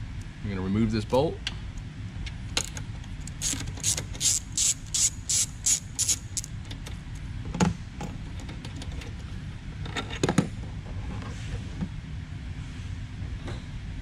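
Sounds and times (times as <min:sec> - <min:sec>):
socket ratchet clicking: 0:03.3 - 0:07.0.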